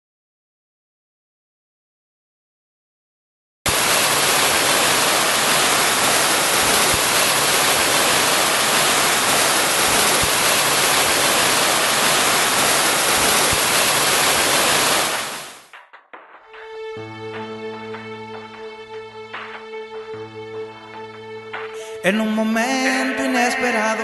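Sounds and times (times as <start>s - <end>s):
water cascading down fountain: 3.7s - 15.7s
music: 15.6s - 24.0s.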